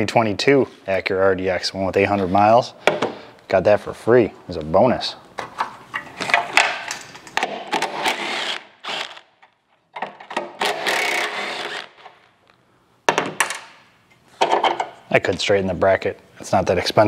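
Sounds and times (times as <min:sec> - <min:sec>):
cordless drill running: 0:08.1 - 0:09.2, 0:10.6 - 0:12.0.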